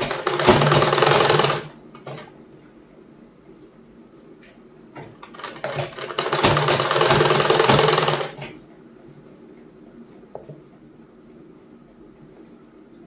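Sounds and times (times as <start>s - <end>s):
sewing machine stitching: 0.0s - 1.7s, 5.2s - 8.4s.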